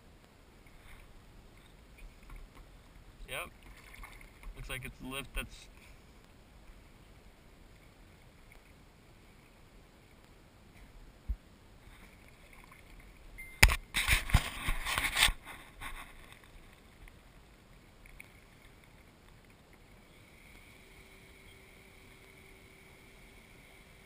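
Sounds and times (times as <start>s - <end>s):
paddle splashing in water: 3.5s - 4.6s.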